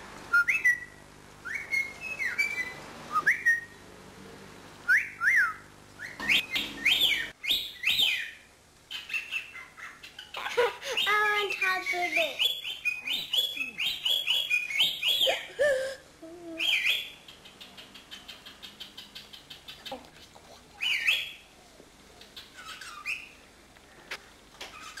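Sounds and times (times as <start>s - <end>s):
cockatiel whistling and chirping: 0.3s - 3.8s, 4.9s - 10.4s, 11.0s - 15.5s, 16.6s - 19.7s, 20.8s - 21.4s, 22.4s - 23.3s, 24.7s - 25.0s
loud swooping bird calls: 6.0s - 15.5s
soft rapid ticking chatter: 17.2s - 20.7s.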